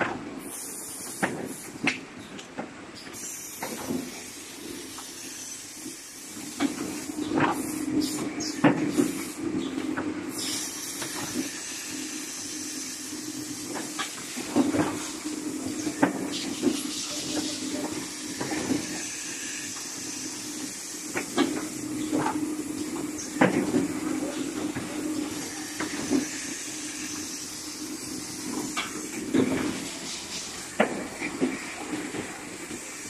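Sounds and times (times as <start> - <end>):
machine mechanical hum: 0.0 - 33.0
pneumatic actuators clacking: 0.0 - 33.0
compressed air hiss: 0.4 - 1.8, 3.2 - 8.2, 8.9 - 9.4, 10.3 - 14.4, 15.0 - 21.9, 24.0 - 31.8.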